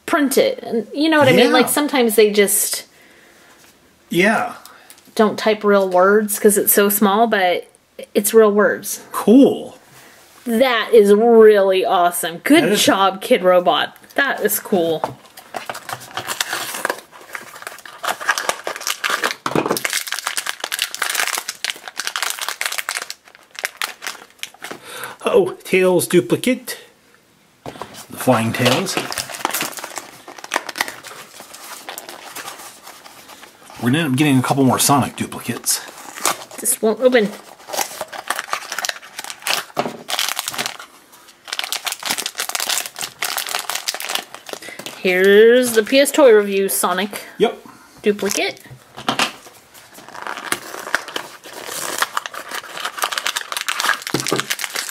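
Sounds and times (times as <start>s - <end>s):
foil packet crinkling: 14.8s - 25.0s, 27.8s - 46.0s, 49.2s - 54.9s.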